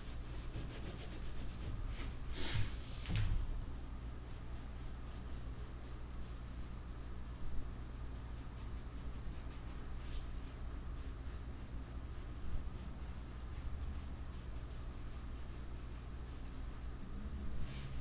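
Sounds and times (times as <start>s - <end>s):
pencil scratching on paper: 0.0s - 1.8s
steady low hum: 0.0s - 18.0s.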